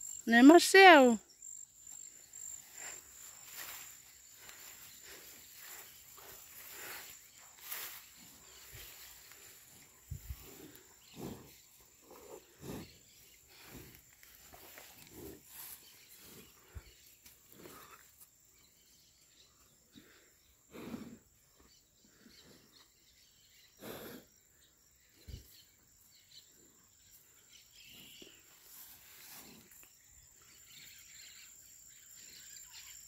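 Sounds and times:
cattle rustling and puffing: 2.0s - 18.3s, 27.8s - 30.0s.

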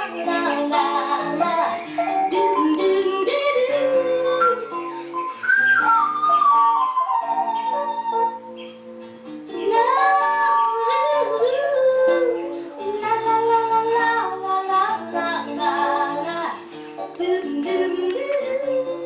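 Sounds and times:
woman singing: 0.0s - 5.1s, 9.5s - 19.0s
instrumental backing: 0.0s - 19.0s.

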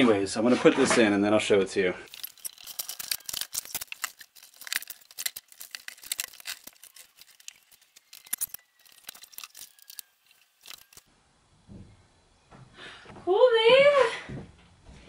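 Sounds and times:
clicking rustling and scraping: 2.1s - 11.1s.

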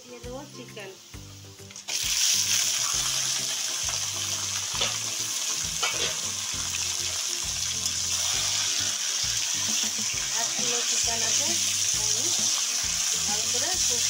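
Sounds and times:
chicken sizzling in oil: 0.0s - 14.0s
metal spatula scraping pan: 5.7s - 6.4s.

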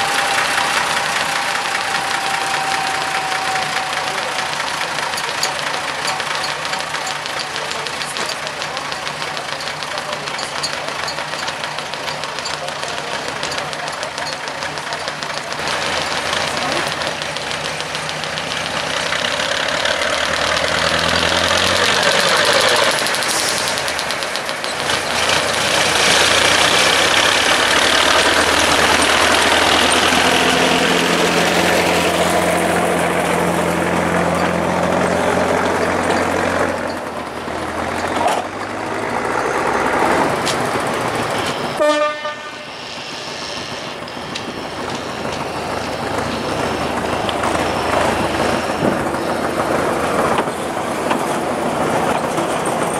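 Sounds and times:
diesel locomotive engine running: 0.0s - 52.9s
wheels on rail: 0.0s - 52.9s
locomotive horn toot: 41.8s - 43.5s.

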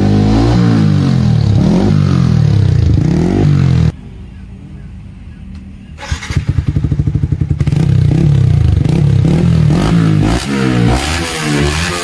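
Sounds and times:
motorcycle exhaust running loud: 0.0s - 3.9s, 6.4s - 12.0s.

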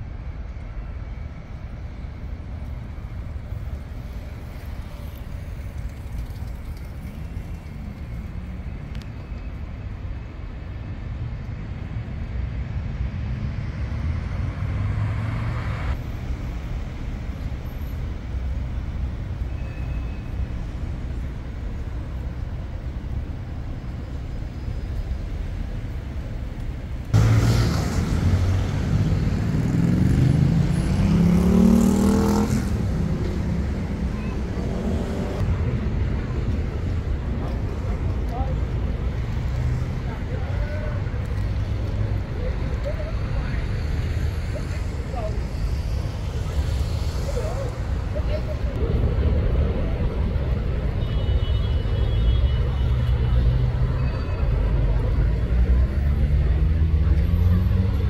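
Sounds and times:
city road traffic rumble: 0.0s - 58.0s
vehicle engine accelerating: 27.1s - 35.7s.

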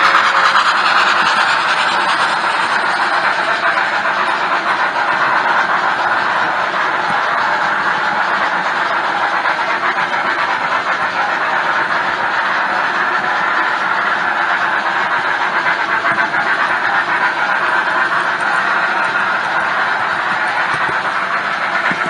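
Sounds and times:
model train wheels rumbling: 0.0s - 22.0s.

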